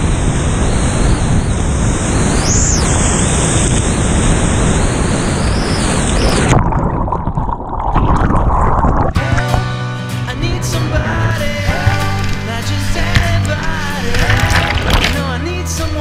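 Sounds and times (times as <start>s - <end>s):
whitewater rapid crashing: 10.3s - 15.6s.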